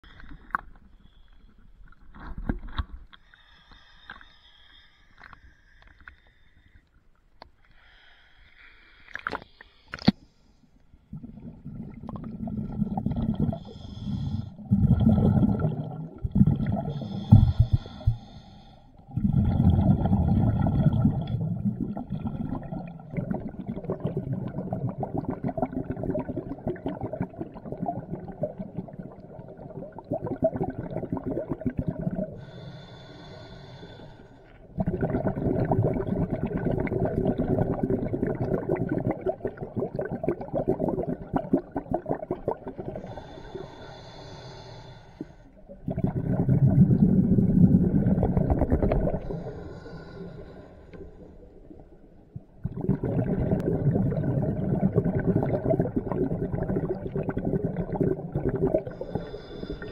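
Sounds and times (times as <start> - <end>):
bubble exhalations underwater: 11.1 - 13.7, 14.6 - 18.1, 19.1 - 32.4, 34.8 - 43.2, 45.7 - 49.5, 52.4 - 59.2
hissing regulator inhalations: 32.4 - 34.6, 43.0 - 45.6, 49.2 - 51.4.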